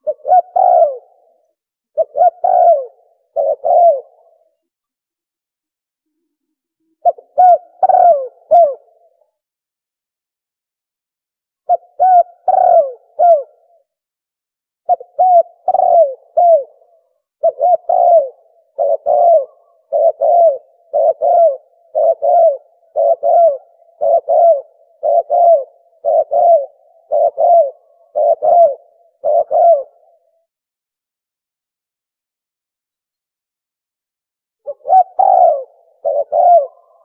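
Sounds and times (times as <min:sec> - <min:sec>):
dove cooing: 0:00.0 - 0:04.7, 0:06.8 - 0:09.2, 0:11.7 - 0:13.9, 0:14.9 - 0:30.5, 0:34.7 - 0:37.0.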